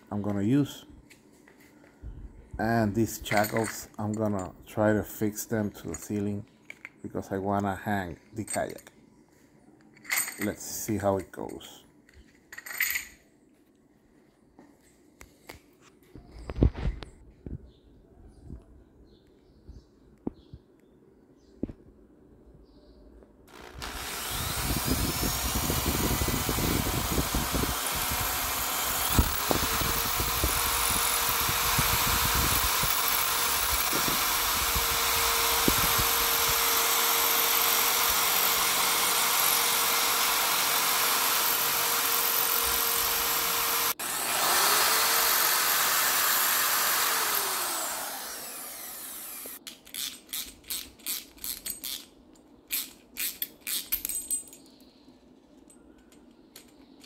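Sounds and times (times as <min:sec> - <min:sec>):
electric drill boring: 0:23.5 - 0:49.6.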